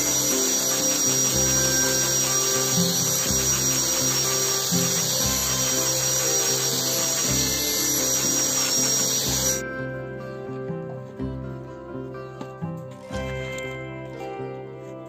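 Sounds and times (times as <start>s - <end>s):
angle grinder sanding whine: 0.0s - 9.6s
background music: 0.0s - 15.0s.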